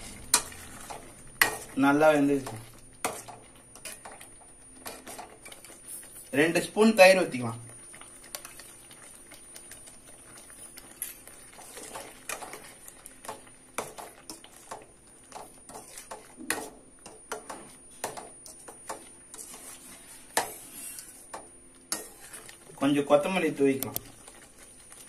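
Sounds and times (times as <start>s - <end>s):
metal spoon scraping pan: 13.8s - 17.6s, 18.4s - 22.5s.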